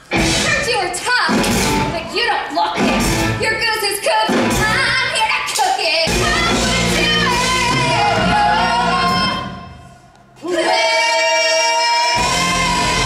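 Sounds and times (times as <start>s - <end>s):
rock band playing: 0.0s - 3.7s, 4.3s - 5.1s, 6.1s - 9.6s
person singing: 10.4s - 13.0s.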